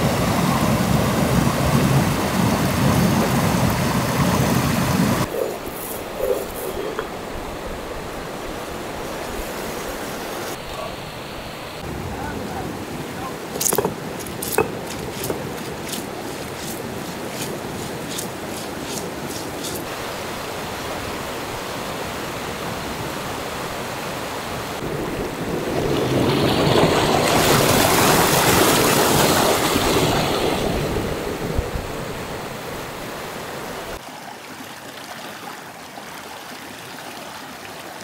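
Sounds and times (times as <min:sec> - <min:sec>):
river rushing over rocks: 0:07.0 - 0:34.0.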